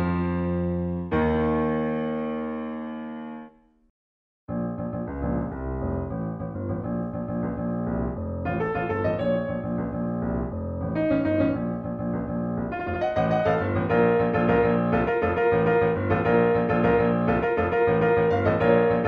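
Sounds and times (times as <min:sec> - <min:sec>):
keyboard music: 0:07.1 - 0:19.0.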